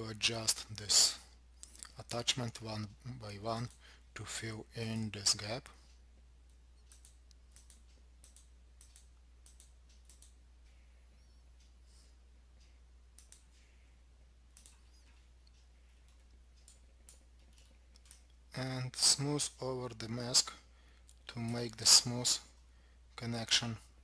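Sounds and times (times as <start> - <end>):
low steady hum: 0.0 - 24.0
faint computer mouse clicks: 6.5 - 10.4, 12.6 - 13.6, 14.5 - 18.4.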